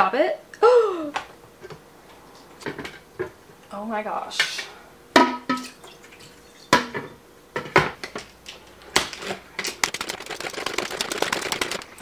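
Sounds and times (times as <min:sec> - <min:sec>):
salad spinner clicking: 0:09.8 - 0:12.0.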